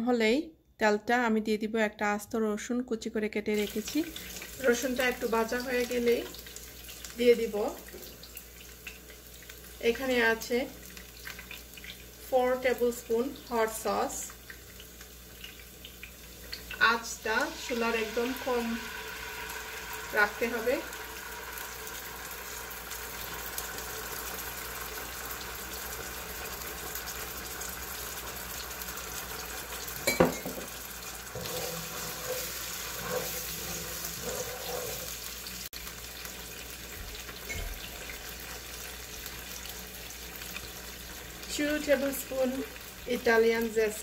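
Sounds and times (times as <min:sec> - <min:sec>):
garlic sizzling in oil: 0:03.5 - 0:44.0
wooden spatula scraping pan: 0:31.3 - 0:35.4.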